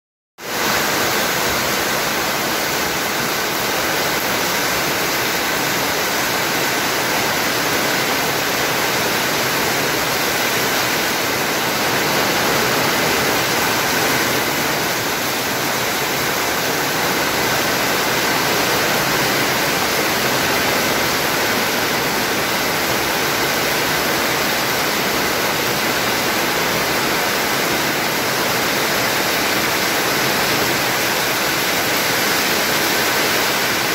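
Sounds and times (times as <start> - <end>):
heavy rain pouring: 0.4 - 33.9.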